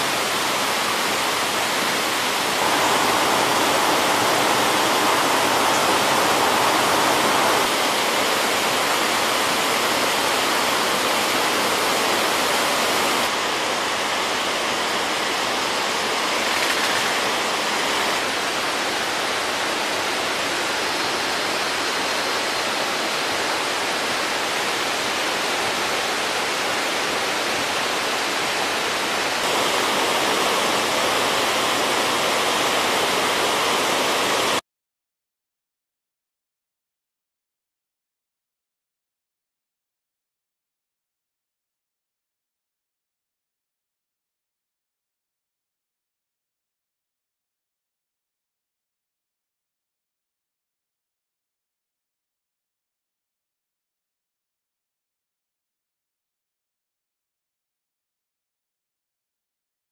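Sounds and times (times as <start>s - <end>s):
waterfall rushing over rocks: 0.0s - 34.6s.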